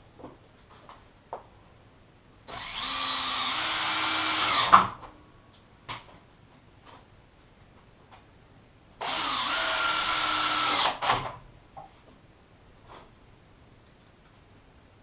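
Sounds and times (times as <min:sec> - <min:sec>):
cordless drill motor whine: 0:02.5 - 0:04.7, 0:09.0 - 0:11.2.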